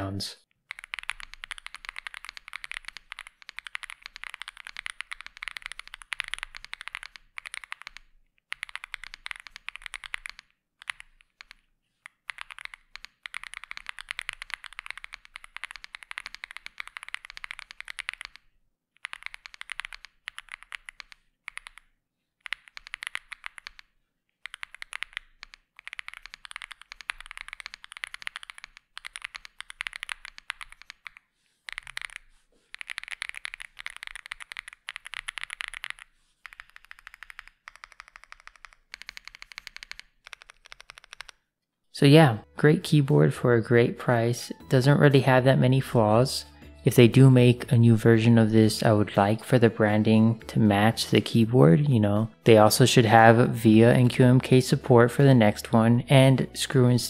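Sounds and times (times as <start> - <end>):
fast mechanical keyboard typing: 0.7 - 18.4, 19.0 - 41.4.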